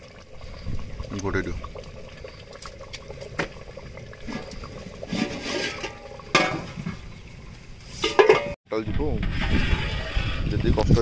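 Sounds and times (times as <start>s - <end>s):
liquid bubbling in a pot: 0.0s - 8.2s.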